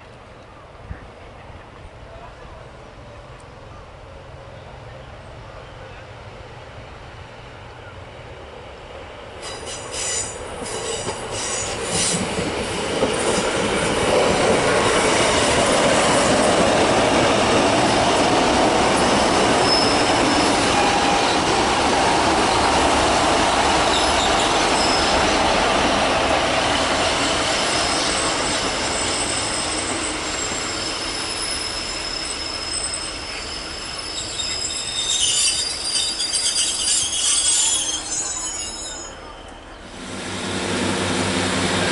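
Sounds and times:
diesel train approaching: 0.0 - 41.9
high-pitched brake squealing: 9.4 - 12.2, 19.5 - 21.5, 23.9 - 25.3, 27.6 - 39.8.

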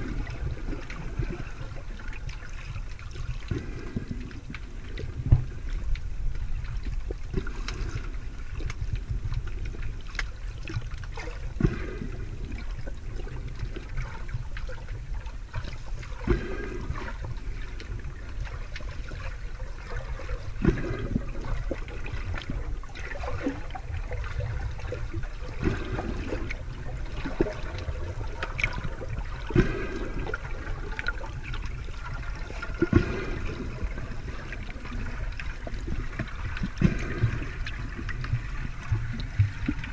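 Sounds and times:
underwater rumble of moving water: 0.0 - 39.9
short water swish: 13.5 - 39.9.

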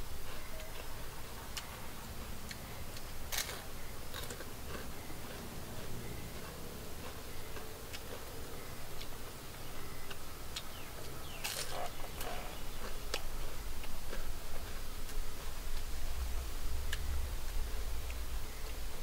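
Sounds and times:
person crunching fried food: 11.4 - 11.9.

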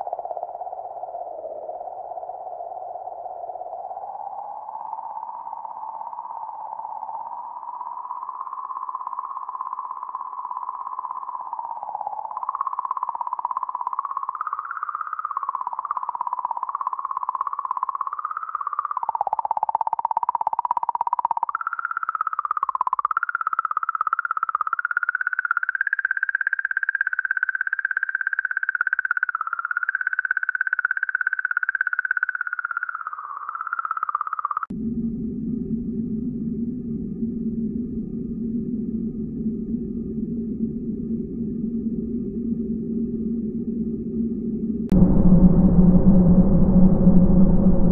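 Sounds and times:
warbling electronic tone: 44.9 - 47.9.

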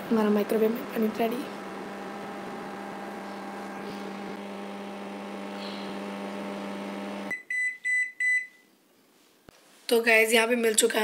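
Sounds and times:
microwave oven humming: 0.0 - 7.4
microwave beeps: 7.2 - 8.6.

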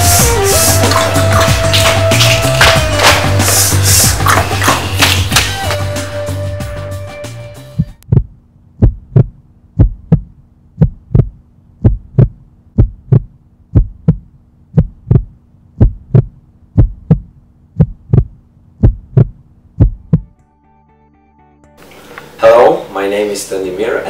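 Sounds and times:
music: 0.0 - 8.0, 20.0 - 22.4
heartbeat thumps: 7.7 - 20.4.

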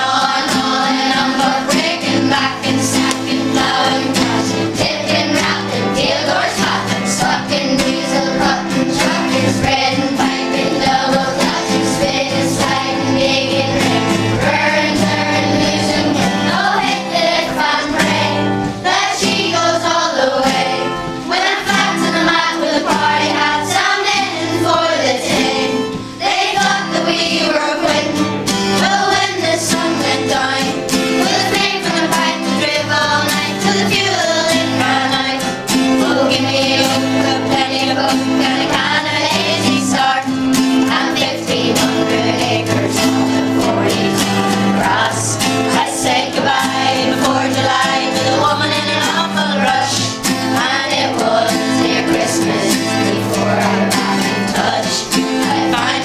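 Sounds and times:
acoustic guitar: 0.0 - 56.0
children singing a hymn: 0.0 - 56.0.

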